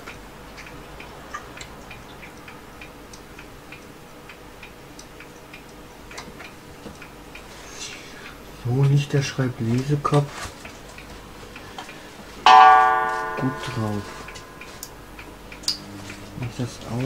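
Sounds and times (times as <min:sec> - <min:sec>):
light ticking clicks: 0:00.0 - 0:07.5
low steady hum: 0:12.0 - 0:16.5.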